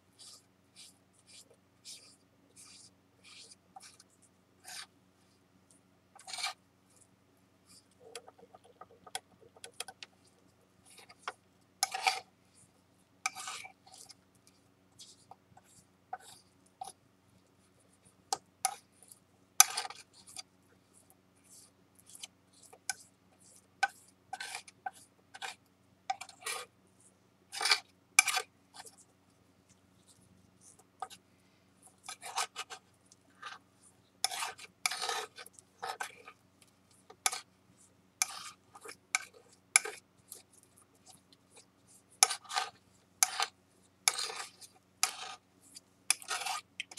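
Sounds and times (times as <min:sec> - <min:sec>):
metal spatula scraping and tapping: 0:06.2 - 0:06.6, 0:07.7 - 0:12.3, 0:13.2 - 0:17.0, 0:18.3 - 0:26.7, 0:27.5 - 0:29.1, 0:30.0 - 0:31.2, 0:31.8 - 0:33.6, 0:34.2 - 0:37.5, 0:38.2 - 0:46.9.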